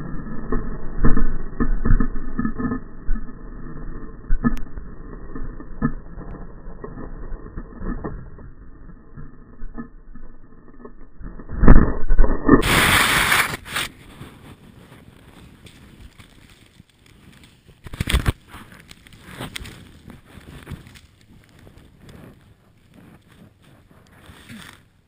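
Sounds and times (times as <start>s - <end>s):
slowed muffled snowmobile rumbling: 0.0s - 25.0s
rush of snow and wind: 11.5s - 25.0s
scattered snow noises: 12.5s - 25.0s.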